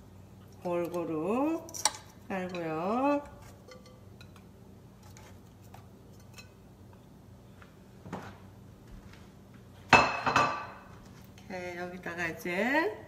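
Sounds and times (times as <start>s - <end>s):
dish clattering on counter: 9.9s - 10.9s.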